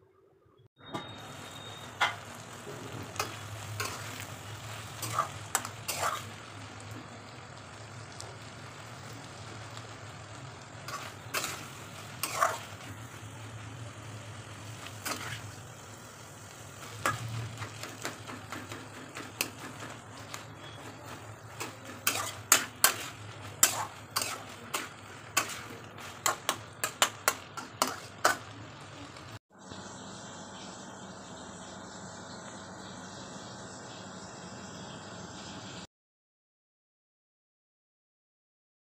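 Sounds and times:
vegetables sizzling in a pan: 0.8 - 35.9
spatula scraping a pan: 2.0 - 6.4, 10.9 - 13.2, 14.7 - 15.6, 16.8 - 28.5
spatula clacking on a pan: 17.0 - 28.5.

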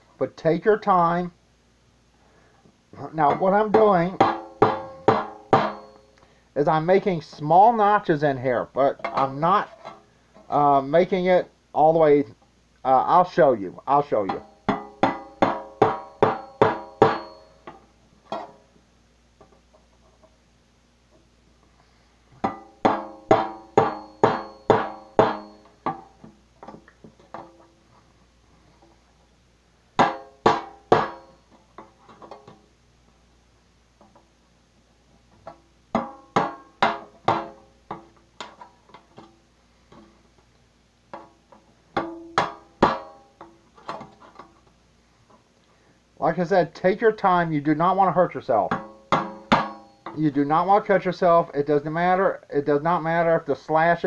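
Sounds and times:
knife striking metal lid: 22.4 - 26.1, 48.7 - 50.2.

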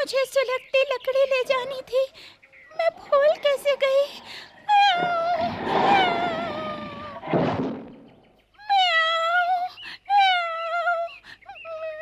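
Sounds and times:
short thud: 7.2 - 8.1.

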